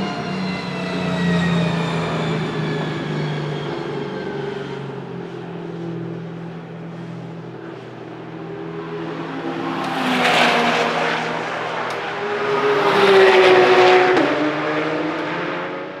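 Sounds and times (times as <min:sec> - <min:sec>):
race car engine revving: 0:08.5 - 0:16.0.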